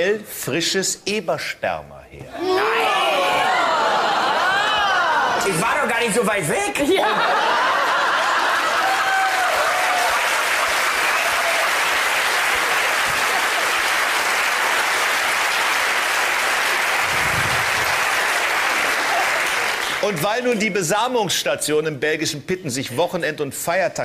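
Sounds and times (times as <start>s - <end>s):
audience applauding: 7.2s - 20.5s.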